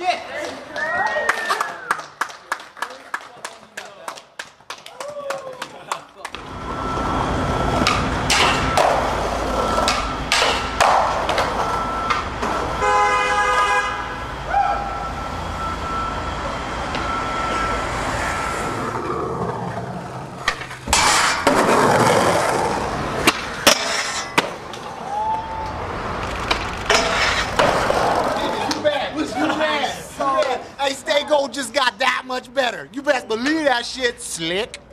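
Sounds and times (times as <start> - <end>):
skateboard wheels rolling on pavement: 4.1 - 14.6, 16.4 - 31.8
skateboard clacking on ground: 9.8 - 12.6
car horn honking: 12.7 - 15.2.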